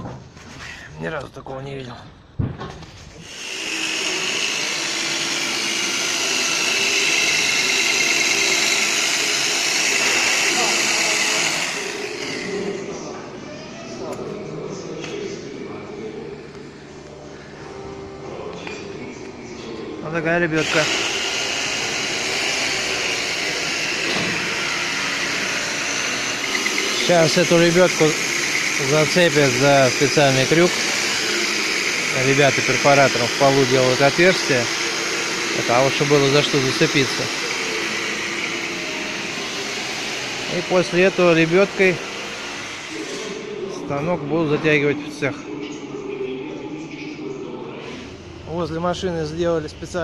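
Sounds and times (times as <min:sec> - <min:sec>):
rotary hammer drilling concrete: 0:03.2 - 0:12.9, 0:20.6 - 0:43.1.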